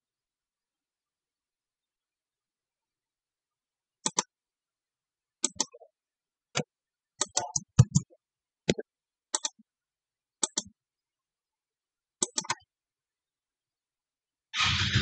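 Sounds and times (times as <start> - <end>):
computer mouse clicking: 4.0 - 4.4, 5.4 - 5.9, 6.6 - 9.6, 10.4 - 10.8, 12.2 - 12.7.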